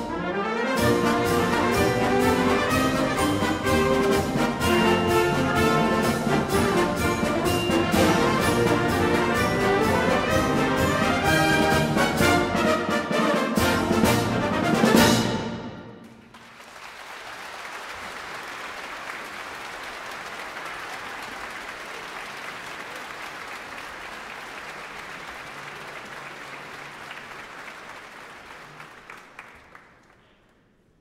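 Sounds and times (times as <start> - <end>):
audience applauding: 16.0 - 30.6.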